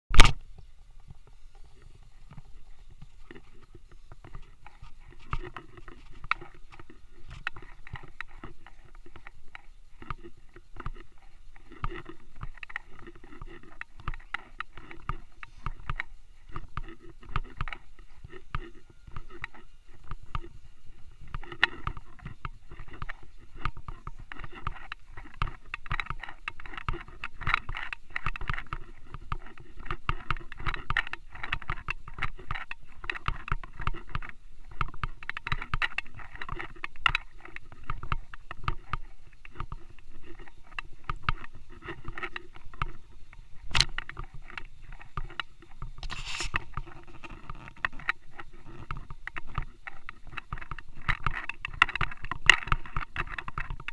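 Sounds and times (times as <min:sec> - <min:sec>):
sharp click: 0:00.1 - 0:00.4.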